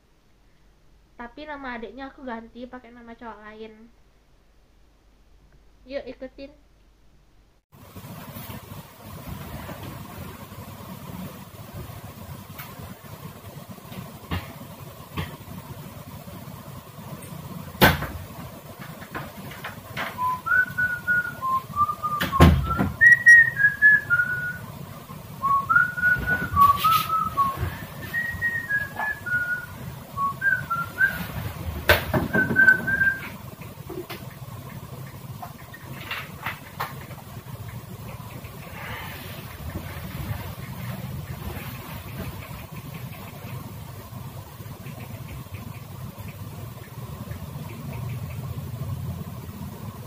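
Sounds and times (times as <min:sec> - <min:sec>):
person whistling a tune: 0:20.2 - 0:24.6, 0:25.4 - 0:31.2, 0:32.3 - 0:33.3.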